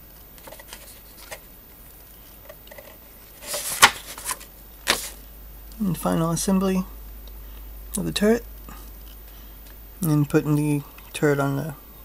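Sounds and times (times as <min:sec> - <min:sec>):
paper pages rustling: 0:03.4 - 0:05.2
sharp paper flap: 0:03.4 - 0:05.2.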